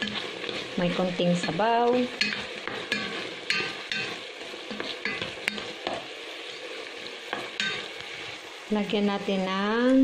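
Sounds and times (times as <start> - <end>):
spoon scraping and knocking pot: 0.0 - 6.1, 7.3 - 8.0
chicken sizzling in a pot: 0.0 - 10.0.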